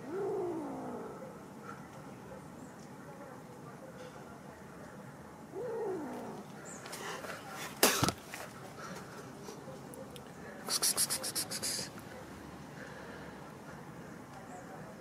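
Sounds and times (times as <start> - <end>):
kitten hissing: 10.7 - 12.0
kitten spitting: 10.7 - 12.0.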